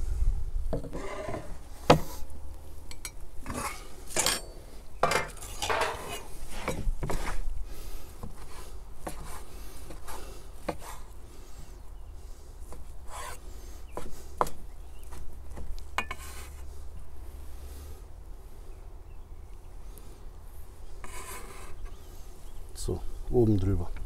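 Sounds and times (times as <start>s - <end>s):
utensils clattering on board and dishes: 3.4s - 6.8s.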